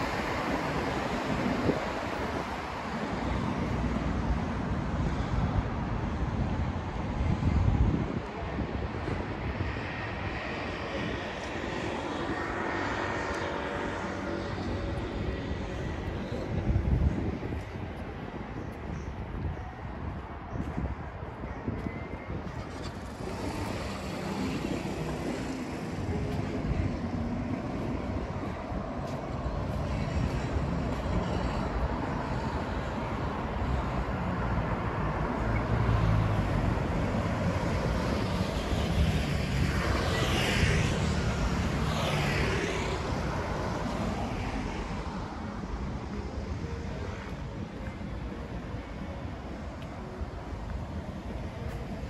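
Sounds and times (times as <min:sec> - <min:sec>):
rumble of passing cars: 0:00.0 - 0:52.0
vehicles sweeping past close: 0:22.2 - 0:52.0.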